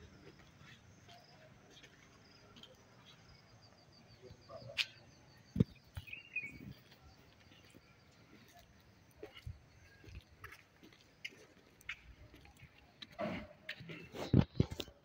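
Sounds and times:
faint high chirps: 0.1 - 11.5.

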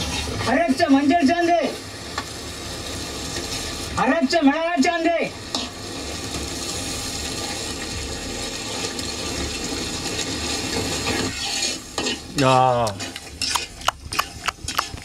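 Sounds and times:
paste sizzling in a wok: 0.0 - 15.0
ladle stirring: 11.1 - 15.0.

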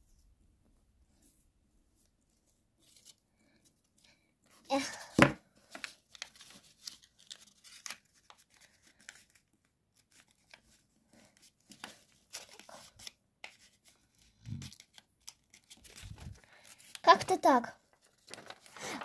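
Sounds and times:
paper crinkling: 4.7 - 19.0.

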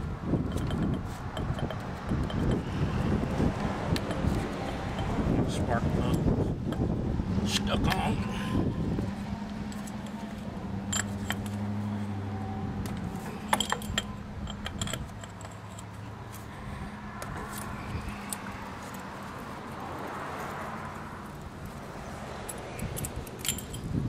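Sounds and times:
metal tools clinking: 9.6 - 19.6, 21.2 - 23.9.

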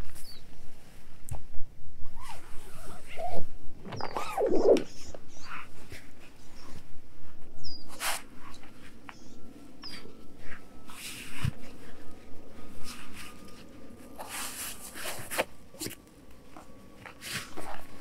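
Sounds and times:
faint high hum: 0.4 - 18.0.

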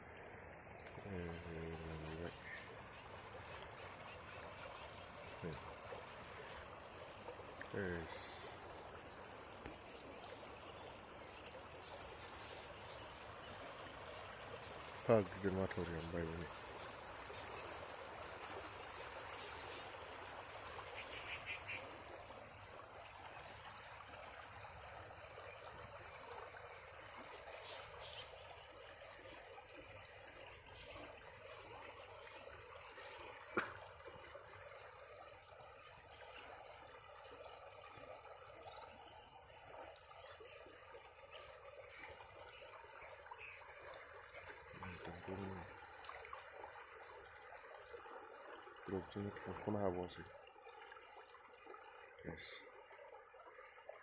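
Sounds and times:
faint chirps: 0.0 - 8.9
river water rushing: 0.8 - 50.9.

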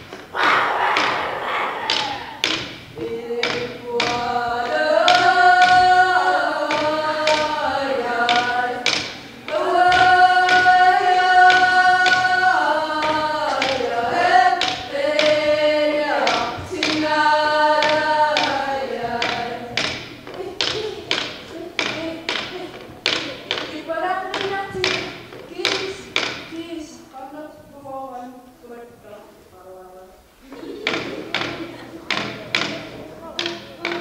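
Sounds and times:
frame drum beaten with a stick: 0.0 - 26.7, 30.6 - 34.0
voices singing long notes: 0.0 - 34.0.

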